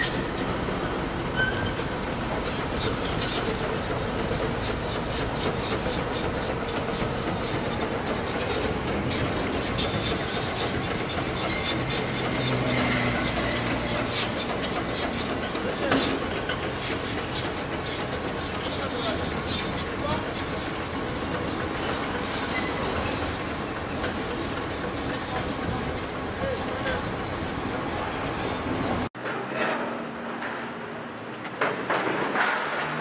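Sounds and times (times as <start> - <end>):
excavator engine and hydraulics: 0.0 - 33.0
brief squeal: 1.3 - 1.9, 22.4 - 23.2.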